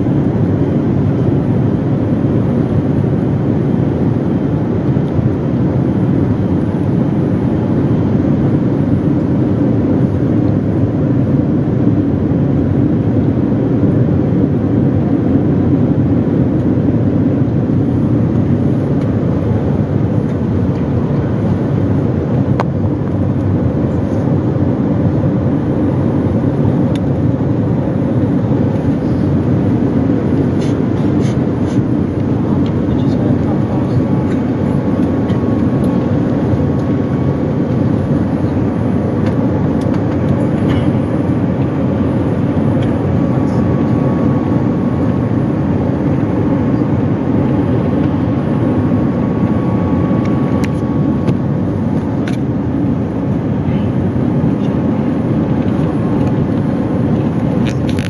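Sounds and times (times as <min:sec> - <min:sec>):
airliner cabin engine rumble: 0:00.0 - 0:58.0.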